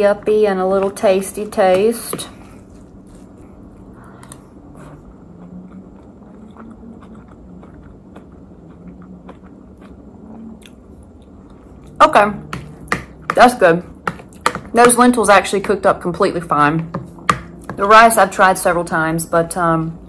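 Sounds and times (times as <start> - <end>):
quiet chewing: 2.4 - 12.0.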